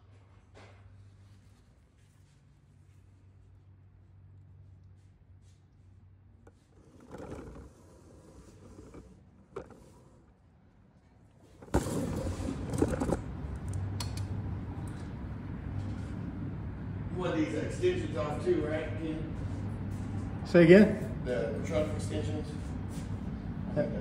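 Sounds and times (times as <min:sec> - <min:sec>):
mechanical hum with hiss: 0:14.4 - 0:24.0.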